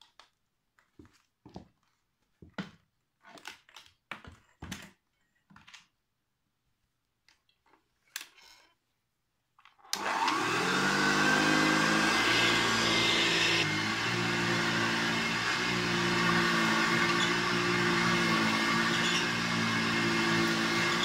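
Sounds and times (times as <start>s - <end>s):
vacuum cleaner motor whining: 10.0s - 21.0s.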